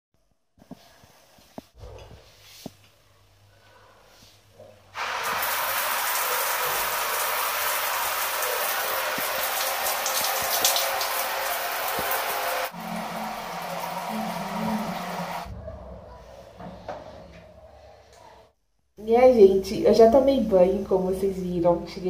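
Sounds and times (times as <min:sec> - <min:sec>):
shower water on tiled floor: 0:00.6 - 0:18.4.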